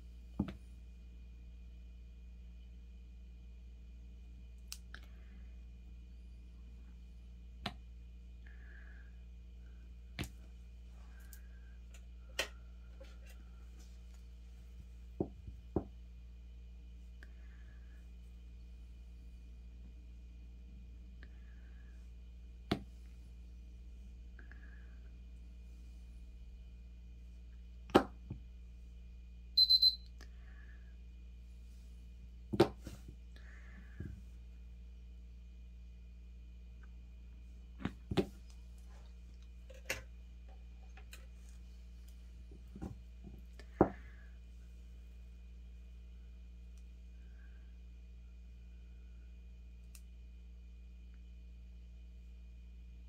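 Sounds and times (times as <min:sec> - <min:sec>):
high electronic beeps: 0:29.6 - 0:30.0.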